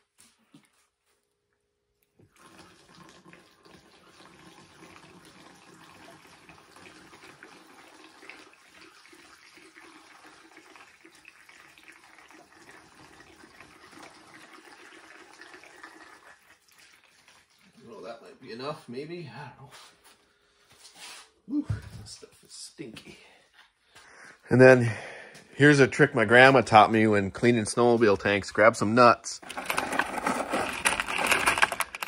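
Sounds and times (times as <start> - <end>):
liquid pouring through a funnel: 2.1 - 18.5.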